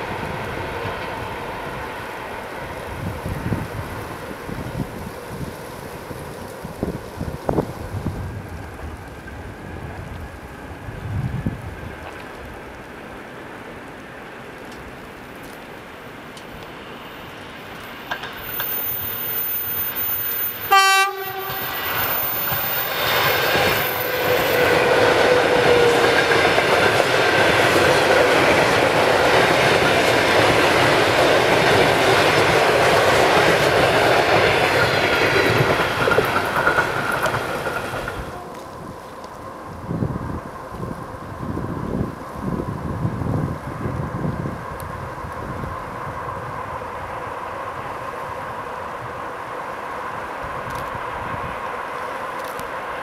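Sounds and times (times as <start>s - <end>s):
train carriages rushing past: 0.0s - 53.0s
train horn blast: 20.6s - 22.1s.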